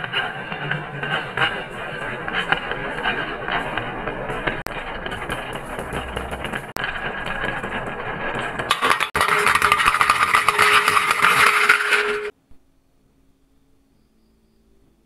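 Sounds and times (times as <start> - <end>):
marbles rolling on wooden track: 8.5 - 12.3
marbles clattering into metal tin: 8.7 - 12.3.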